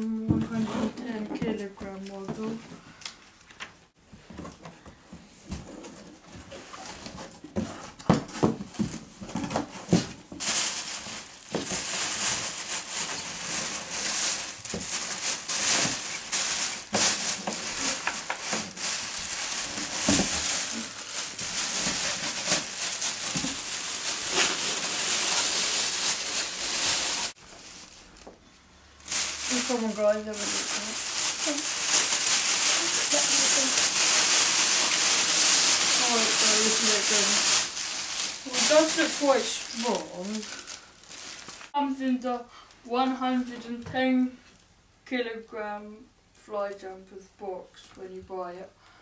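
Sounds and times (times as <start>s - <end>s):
packaging crinkling and rustling: 5.9s - 28.4s, 29.0s - 41.8s
packaging knocks and thuds: 7.6s - 27.3s.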